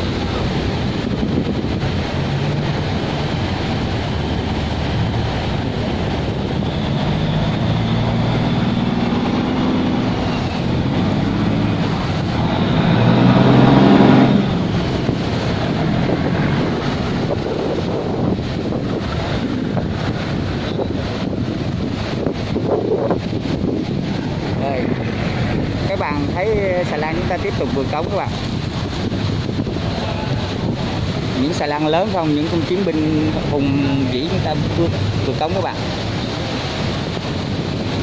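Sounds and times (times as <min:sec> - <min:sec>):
barge diesel engine running: 0:00.0 - 0:22.5
churning water and propeller wash: 0:00.0 - 0:38.0.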